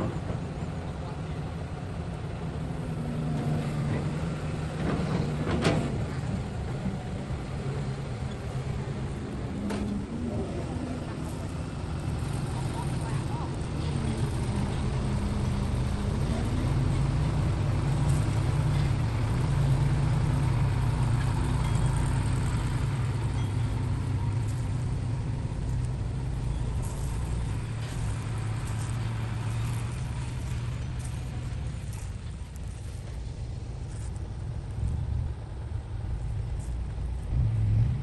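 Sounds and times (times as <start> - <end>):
truck engine driving off: 0.0 - 38.0.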